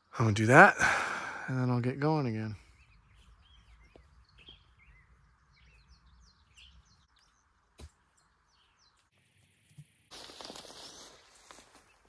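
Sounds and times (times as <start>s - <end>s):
small birds chirping: 1.4s - 12.0s.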